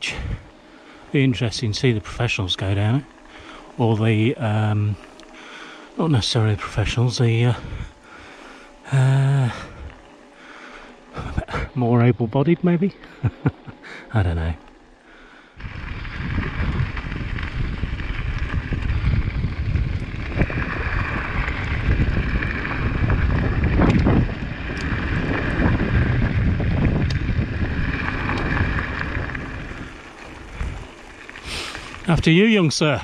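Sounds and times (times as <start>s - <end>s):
wind buffeting microphone: 6.0s - 8.0s, 15.6s - 32.4s.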